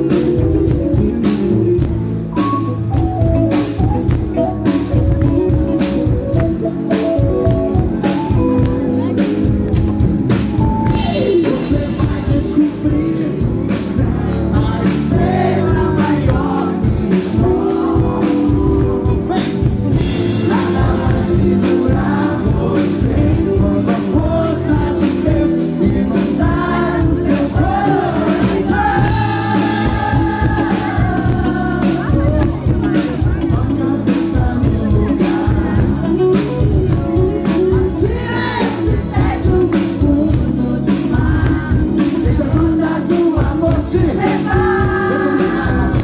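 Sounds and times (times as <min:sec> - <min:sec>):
live band playing: 0:00.0 - 0:46.0
man singing into a microphone: 0:10.9 - 0:46.0.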